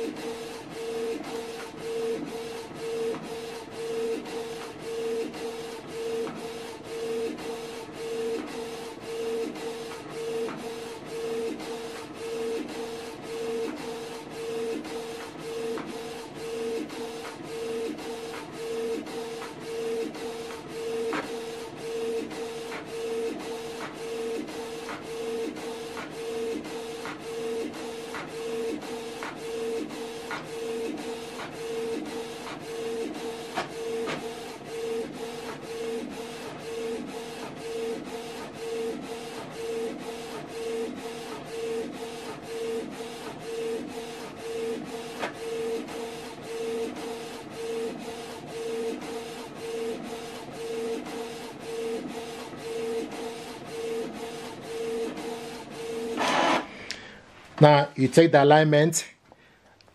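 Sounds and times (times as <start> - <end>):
printer carriage whining: 0.0 - 56.9
paper feed clicks: 27.8 - 34.6.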